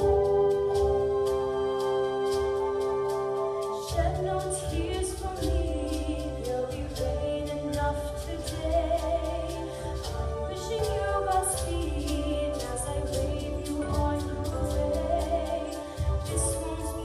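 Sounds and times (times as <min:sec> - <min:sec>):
woman singing: 0:00.0 - 0:17.0.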